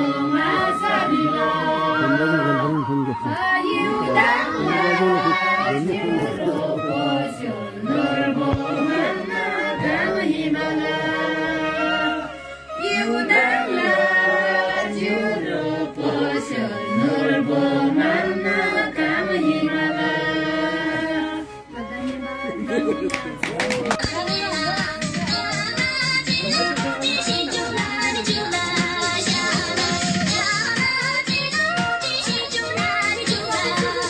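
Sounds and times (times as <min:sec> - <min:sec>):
group of voices singing: 0:00.0 - 0:22.4, 0:23.9 - 0:34.0.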